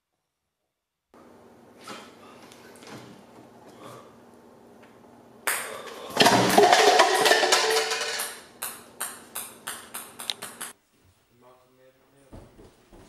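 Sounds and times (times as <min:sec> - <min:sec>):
ping-pong ball bouncing on table: 0:08.0 - 0:10.8.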